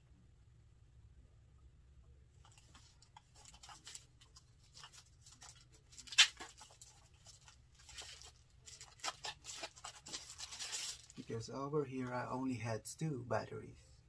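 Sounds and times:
packaging rustling and crinkling: 2.4s - 11.3s
sharp packaging crackle: 2.4s - 11.3s.

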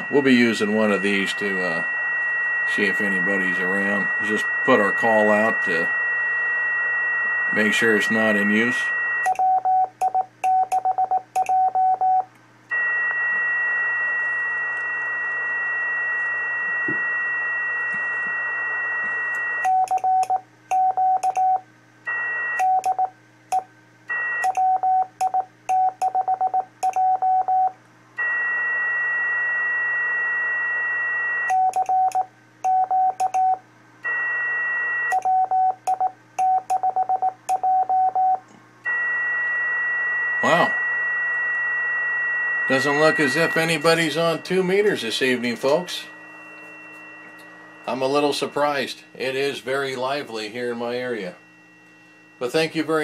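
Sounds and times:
radio hiss with high whistle: 0.0s - 9.3s, 12.7s - 19.6s, 28.2s - 31.5s, 34.1s - 35.2s, 38.9s - 53.0s
morse code beeps: 0.0s - 21.6s, 22.2s - 23.1s, 24.2s - 27.7s, 31.3s - 53.0s.

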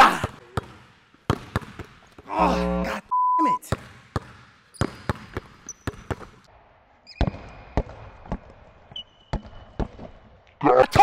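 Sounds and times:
basketball bouncing on wooden floor: 0.2s - 2.3s, 3.7s - 6.4s
shoe squeals: 4.8s - 6.2s, 7.0s - 7.6s, 8.9s - 9.8s.

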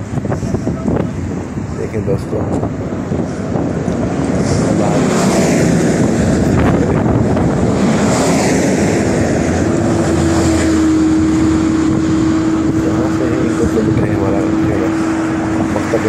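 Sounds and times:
buses driving past: 0.0s - 16.0s
low engine hum: 0.0s - 16.0s
wind buffeting microphone: 0.0s - 16.0s.

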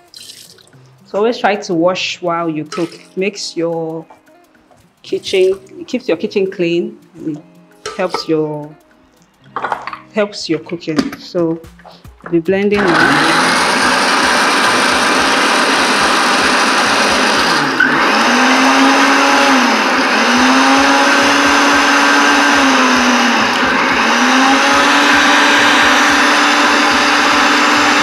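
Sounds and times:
blender running: 12.8s - 28.0s.

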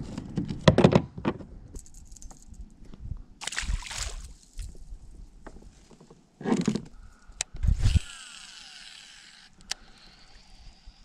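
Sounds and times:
fishing reel line whirring: 7.7s - 11.0s.

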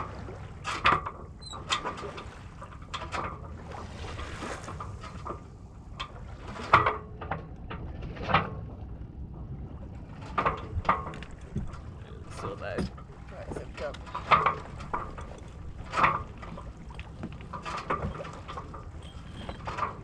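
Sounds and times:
boat knocks and clicks: 0.0s - 20.0s
water rushing: 10.0s - 20.0s.

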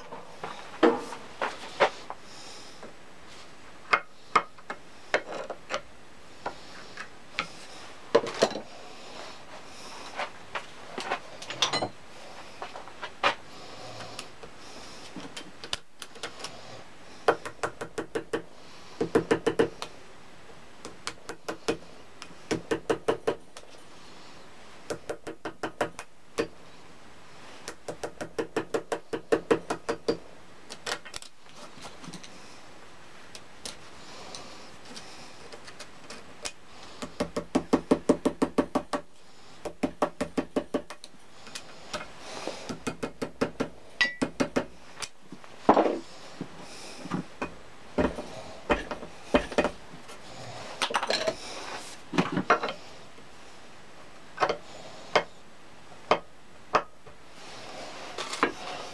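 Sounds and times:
hammer tapping metal punch: 42.7s - 44.7s.

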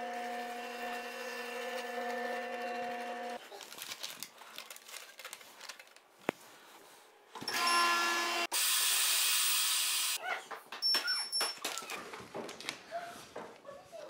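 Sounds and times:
vacuum sealer humming whine: 0.0s - 3.4s.

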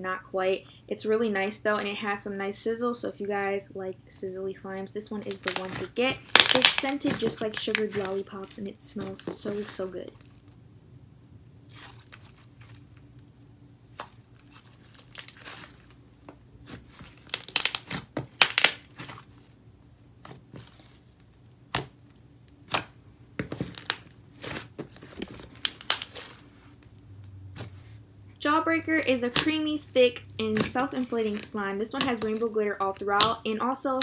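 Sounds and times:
slime crackling and popping: 5.2s - 10.5s, 13.9s - 16.0s, 16.6s - 19.2s, 21.6s - 27.0s, 28.8s - 34.0s.

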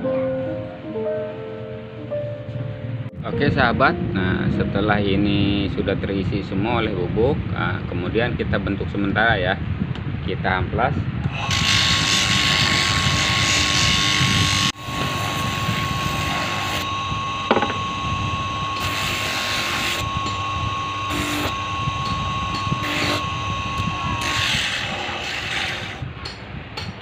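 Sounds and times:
motor whine: 11.3s - 26.1s
sanding disc grinding: 11.3s - 26.1s.

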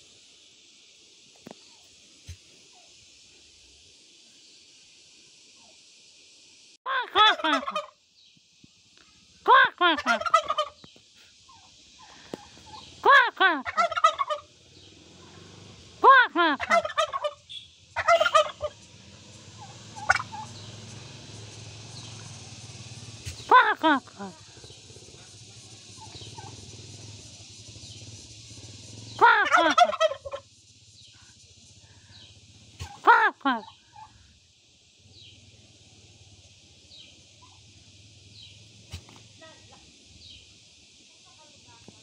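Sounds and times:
turkey gobbling: 7.2s - 8.0s, 10.0s - 10.8s, 11.5s - 13.0s, 13.6s - 14.6s, 16.6s - 20.7s, 23.2s - 23.6s, 24.5s - 26.8s, 29.2s - 30.5s, 32.6s - 34.1s, 37.3s - 37.6s, 38.2s - 39.2s
short turkey call: 32.8s - 34.1s.

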